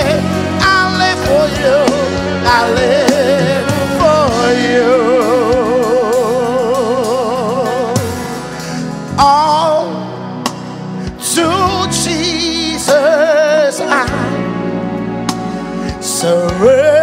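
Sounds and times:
sustained musical accompaniment: 0.0 - 17.0.

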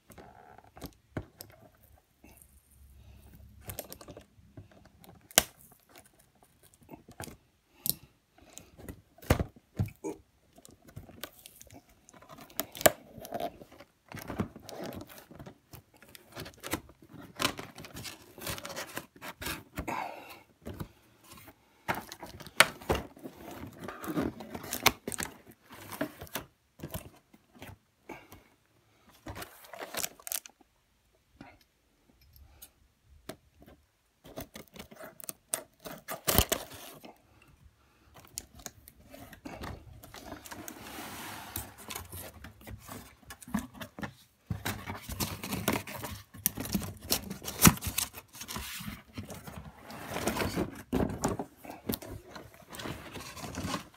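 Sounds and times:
packaging rustling and crinkling: 10.6 - 19.9, 29.1 - 30.6, 38.2 - 53.9.

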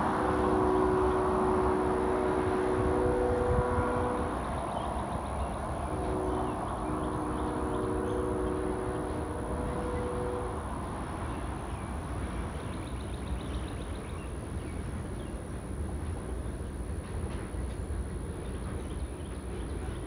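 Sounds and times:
locomotive air horn chord: 0.0 - 11.6
low rumble of train: 0.0 - 20.0.

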